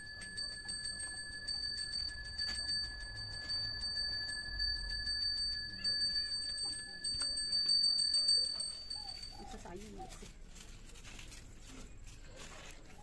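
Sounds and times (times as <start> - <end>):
hand bell ringing fast: 0.0 - 9.6.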